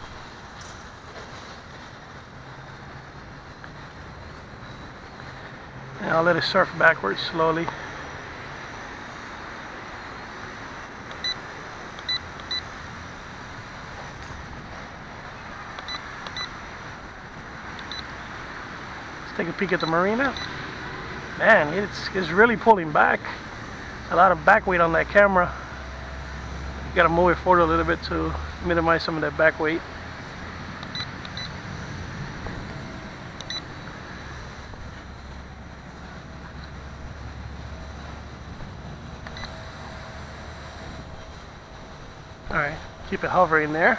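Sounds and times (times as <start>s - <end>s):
steady outdoor noise: 0.0s - 43.9s
quadcopter motors whirring: 2.7s - 43.9s
short high beeps: 19.8s - 20.6s, 30.9s - 31.5s.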